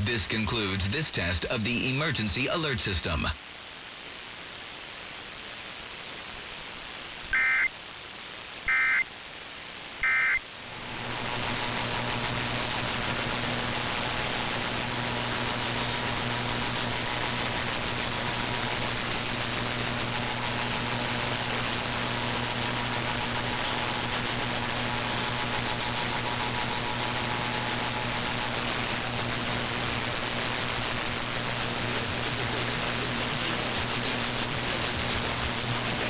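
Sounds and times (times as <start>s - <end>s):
low steady hum: 0.0s - 36.0s
radio static hiss: 0.0s - 36.0s
faint radio whistle: 7.4s - 7.7s, 8.7s - 9.1s, 10.0s - 10.4s.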